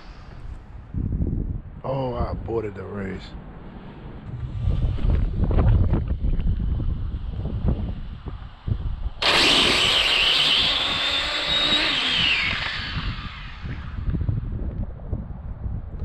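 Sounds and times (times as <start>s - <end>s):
wind buffeting microphone: 0.0s - 16.0s
electric motor high whine: 9.2s - 14.5s.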